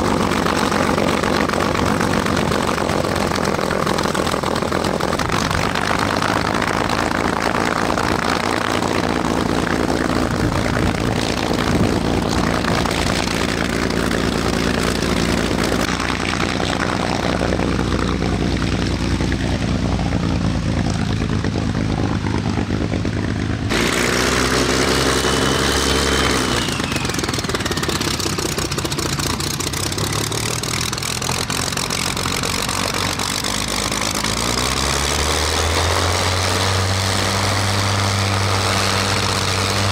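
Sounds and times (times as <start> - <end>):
propeller plane engine idling: 0.0 - 39.9.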